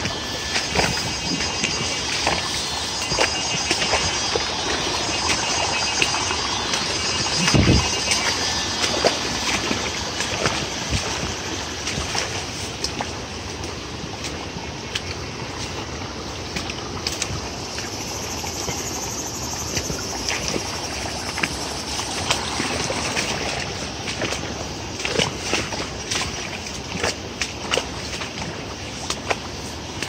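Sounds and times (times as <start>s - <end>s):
stream splashing over rocks: 0.0s - 30.0s.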